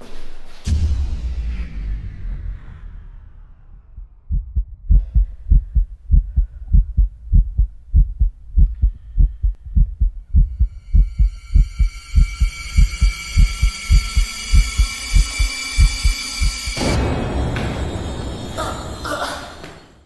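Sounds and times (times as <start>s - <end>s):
heartbeat thumps: 4.0s - 16.9s
high ringing drone: 10.4s - 19.0s.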